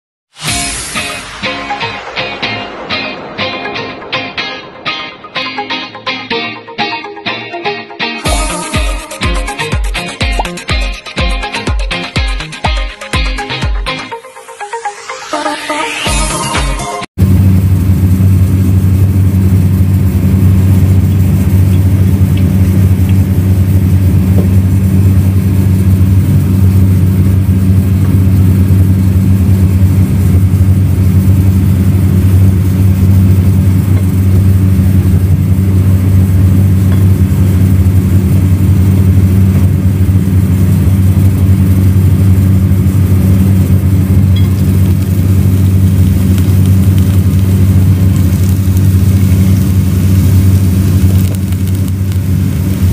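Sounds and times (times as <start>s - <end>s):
low machine hum: 17.2s - 52.9s.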